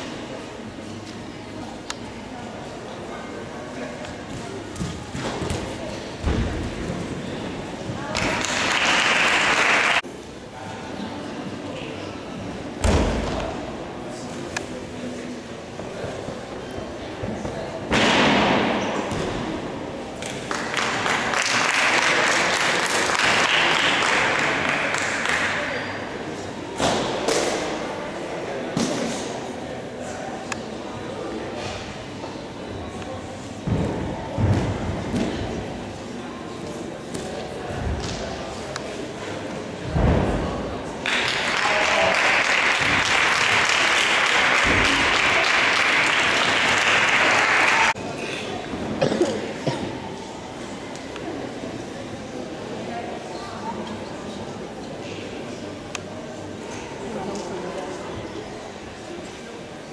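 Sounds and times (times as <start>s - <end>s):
spectators applauding: 8.2s - 10.0s, 20.5s - 25.6s, 41.0s - 48.0s.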